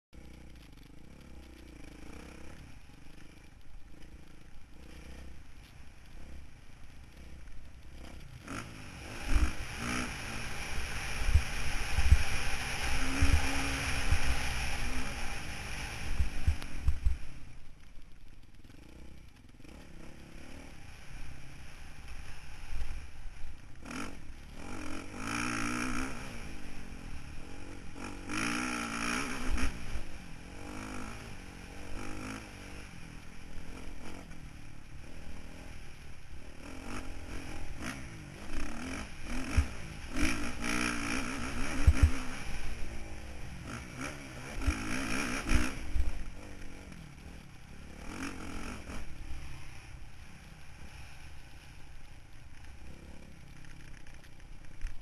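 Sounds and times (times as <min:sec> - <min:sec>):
motocross bike engine revving: 0:00.2 - 0:17.4, 0:18.6 - 0:55.0
wind on microphone: 0:11.2 - 0:14.4.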